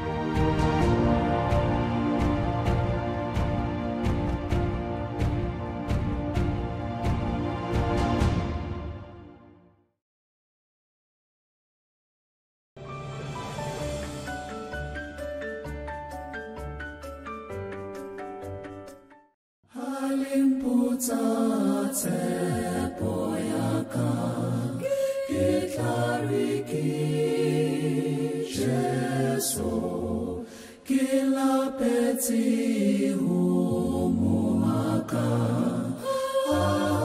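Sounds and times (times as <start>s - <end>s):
group singing in harmony: 19.7s - 37.0s.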